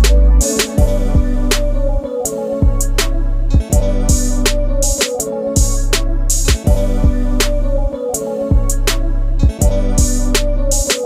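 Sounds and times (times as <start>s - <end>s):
music with steady beat and bass: 0.0s - 11.0s.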